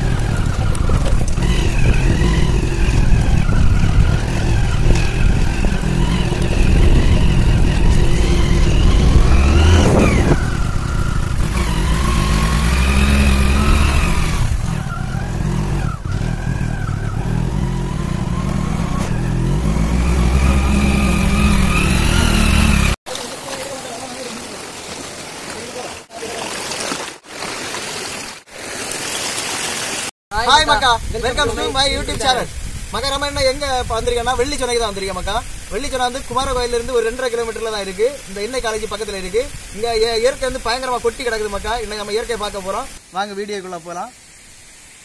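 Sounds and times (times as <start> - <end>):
motorbike engine revving: 0.0 - 23.0.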